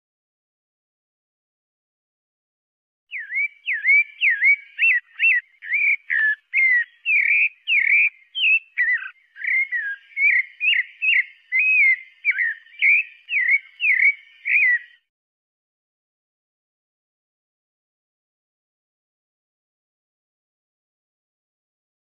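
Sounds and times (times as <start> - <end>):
thrush singing whistled notes: 3.1 - 15.1.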